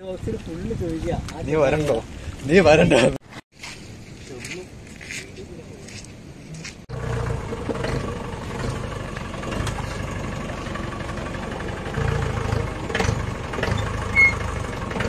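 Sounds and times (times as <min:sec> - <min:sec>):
jeep engine idling: 0:06.9 - 0:15.0.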